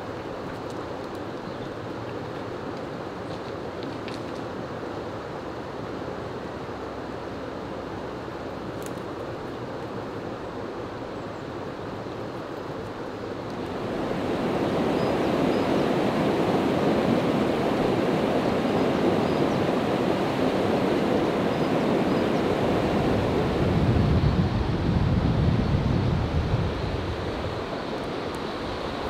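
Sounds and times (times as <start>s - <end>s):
river water rushing over waterfall: 13.4s - 23.8s.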